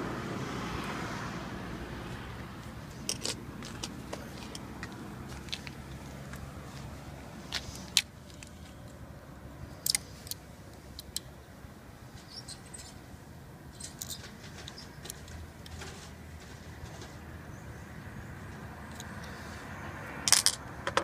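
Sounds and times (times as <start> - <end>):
small metal parts clicking: 13.7 - 15.9, 20.3 - 21.0.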